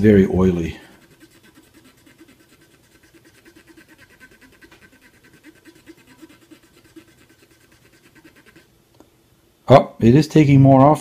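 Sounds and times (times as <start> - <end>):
cotton swab scrubbing plastic: 0.9 - 8.7.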